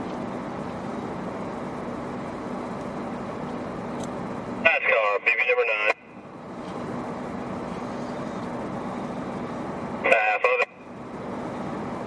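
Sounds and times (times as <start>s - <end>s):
voice over two-way radio: 4.6s - 6.1s, 10.0s - 10.8s.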